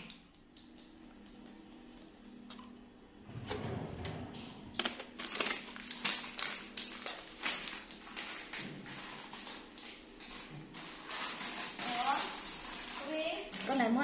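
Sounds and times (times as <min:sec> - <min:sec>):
plastic packets crinkling: 0:04.8 - 0:14.0.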